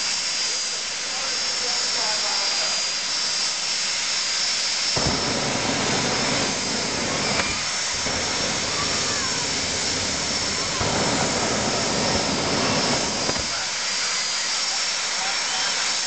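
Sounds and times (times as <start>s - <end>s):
turbine engine high whine: 0.0s - 16.0s
loud hiss: 4.7s - 16.0s
afterburner rumble: 4.9s - 15.1s.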